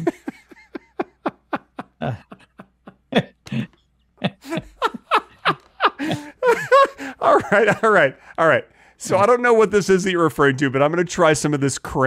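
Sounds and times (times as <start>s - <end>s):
men laughing: 0.0s - 8.2s.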